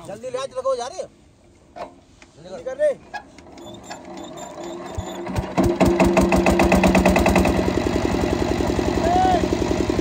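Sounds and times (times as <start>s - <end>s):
diesel engine starting and running: 3.4s - 10.0s.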